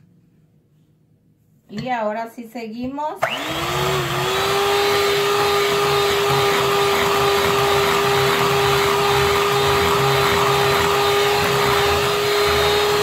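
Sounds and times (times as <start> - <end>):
electric hand mixer whining: 3.2 - 13.0.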